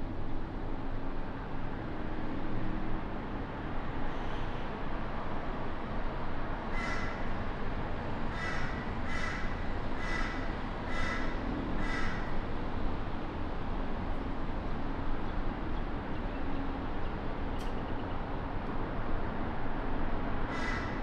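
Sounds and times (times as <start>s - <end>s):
crow cawing: 6.7s - 7.2s, 8.3s - 12.3s, 20.5s - 21.0s.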